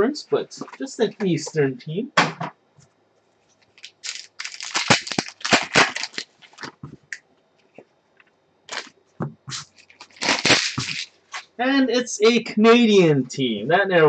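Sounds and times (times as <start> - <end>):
foil wrapper crinkling: 3.6 - 6.8, 8.7 - 8.9, 9.6 - 11.5.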